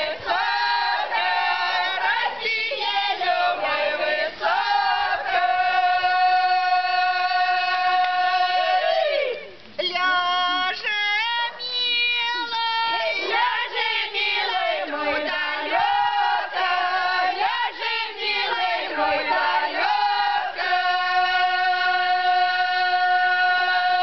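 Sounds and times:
women singing folk song: 0.0 - 24.0.

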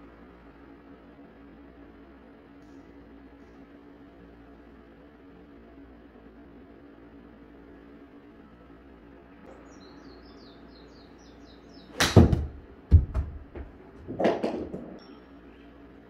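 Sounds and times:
ball thudding on screen and walls: 11.9 - 15.0
golf club striking ball: 11.9 - 15.0.

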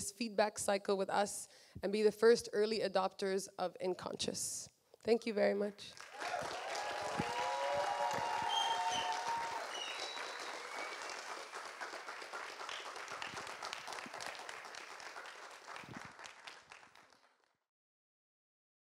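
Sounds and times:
audience applauding: 5.9 - 17.5.

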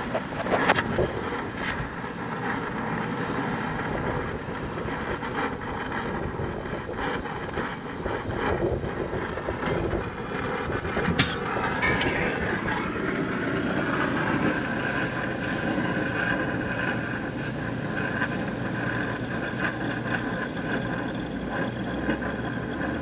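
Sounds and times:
torch flame hissing: 0.0 - 23.0.

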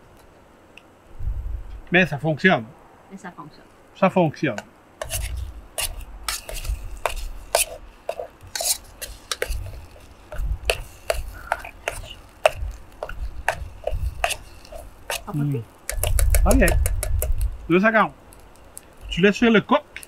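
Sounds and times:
metal utensils scraping in pan: 5.0 - 17.3
dull knocks of pan handled: 15.9 - 17.4.

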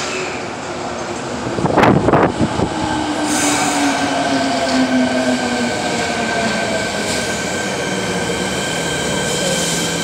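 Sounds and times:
train wheels rumbling on rail: 0.0 - 10.0.

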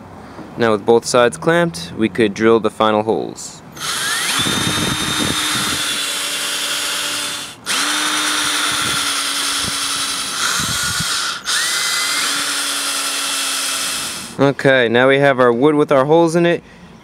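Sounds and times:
cordless drill boring wood: 3.8 - 14.4.

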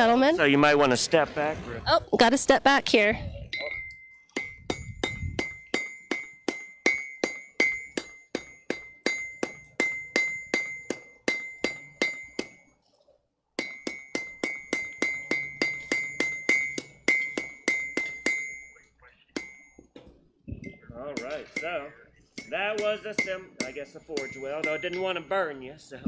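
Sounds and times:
hammer striking iron on anvil: 3.6 - 12.6, 13.6 - 20.1, 21.1 - 25.7.

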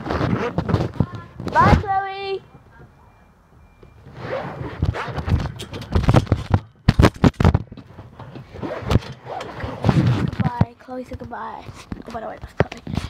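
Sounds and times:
phone thumping and scraping: 0.0 - 1.9, 4.1 - 10.7.

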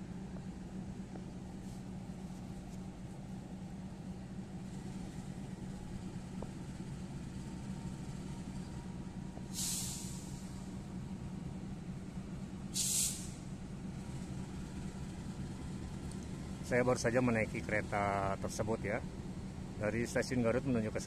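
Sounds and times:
locomotive idling hum: 0.0 - 21.0
compressed air hissing: 9.5 - 10.6, 12.7 - 13.5.

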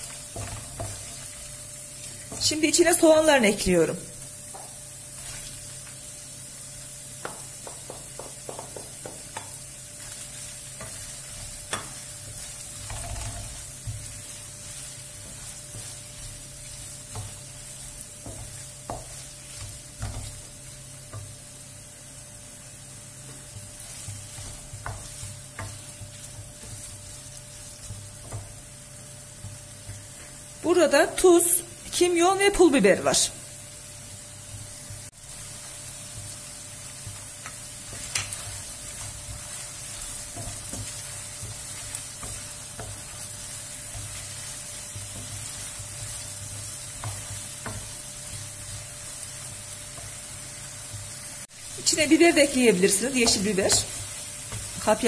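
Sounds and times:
food sizzling in frying pan: 0.0 - 55.0
wooden spoon knocking pan: 7.2 - 9.6.

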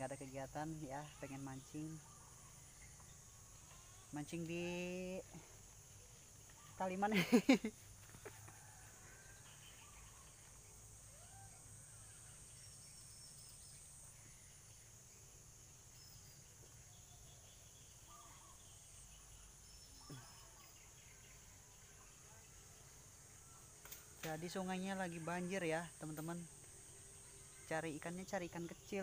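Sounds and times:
high insect drone: 0.0 - 29.0
faint bird calls: 17.1 - 22.6.

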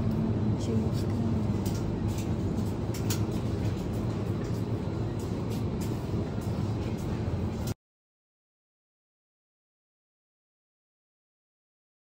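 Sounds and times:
refrigerator low hum: 0.0 - 7.8.

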